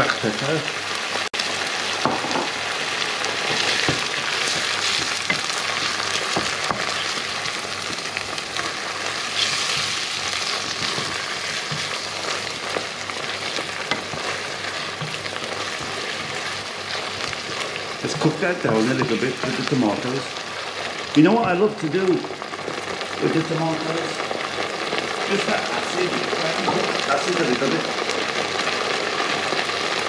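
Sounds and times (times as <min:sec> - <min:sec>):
mince sizzling in a frying pan: 0:00.0 - 0:30.0
wooden spatula stirring and scraping: 0:02.8 - 0:23.2.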